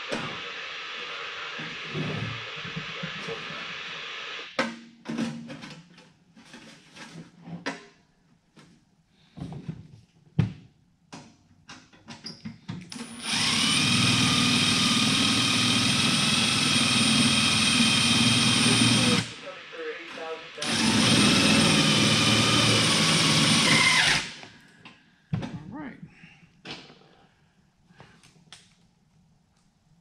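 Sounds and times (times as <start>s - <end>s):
cordless drill whining: 12.9s - 19.4s, 20.6s - 24.5s.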